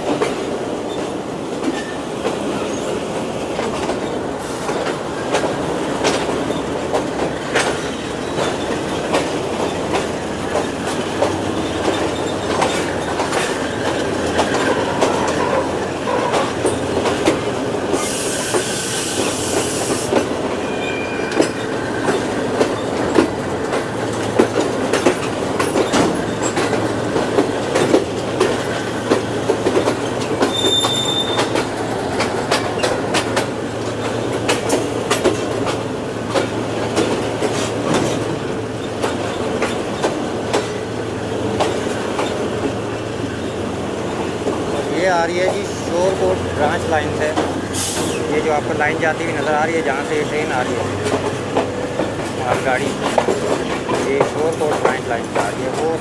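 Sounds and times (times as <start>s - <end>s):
wheels clicking over rail joints: 0.0s - 20.6s, 21.3s - 56.0s
train rumble: 0.0s - 56.0s
burst of hiss: 18.0s - 20.1s
high wheel squeal: 18.0s - 21.9s, 30.5s - 31.6s.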